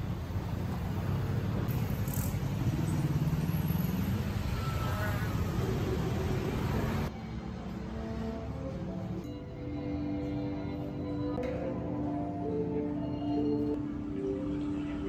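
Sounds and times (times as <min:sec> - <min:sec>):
cars passing: 0:00.0 - 0:11.2
soft background music: 0:06.7 - 0:15.0.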